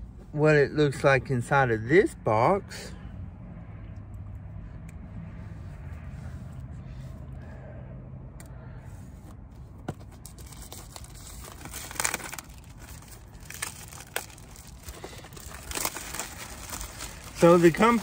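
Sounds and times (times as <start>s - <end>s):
cardboard tearing and crinkling: 10.0s - 18.0s.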